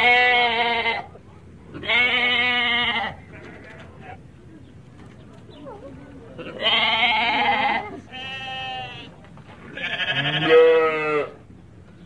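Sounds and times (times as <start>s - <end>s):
animal bleating: 0.0s - 4.3s, 6.4s - 11.4s.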